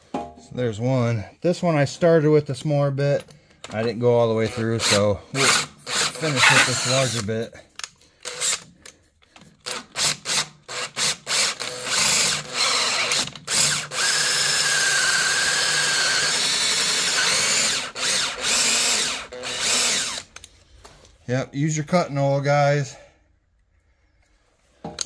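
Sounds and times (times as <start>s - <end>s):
cordless drill boring through steel: 4.4s - 7.3s, 8.2s - 8.7s, 9.6s - 20.4s.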